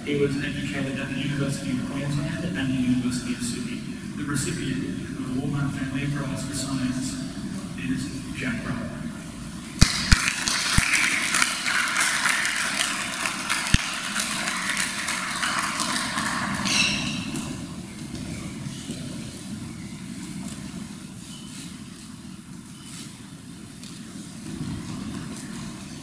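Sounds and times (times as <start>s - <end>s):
audience applauding: 9.8s - 17.4s.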